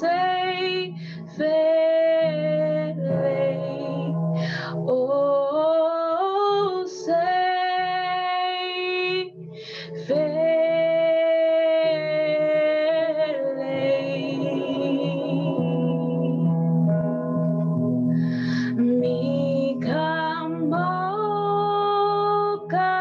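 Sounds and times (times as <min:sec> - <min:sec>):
woman singing: 0:00.0 - 0:16.5, 0:18.4 - 0:23.0
keyboard chords: 0:08.1 - 0:23.0.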